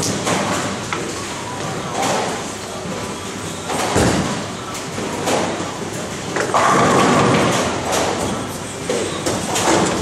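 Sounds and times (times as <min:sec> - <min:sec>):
bowling ball thudding and rolling: 0:03.8 - 0:04.4.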